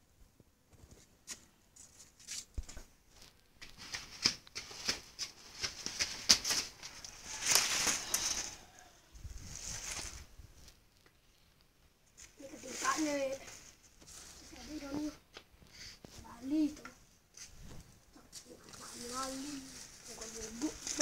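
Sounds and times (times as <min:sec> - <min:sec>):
plastic sheet rustling and flapping: 0:03.7 - 0:10.6, 0:12.2 - 0:14.8, 0:17.5 - 0:21.0.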